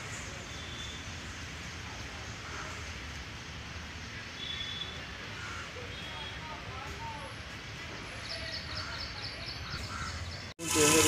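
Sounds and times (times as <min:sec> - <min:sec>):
even hiss: 0:10.6 - 0:11.0.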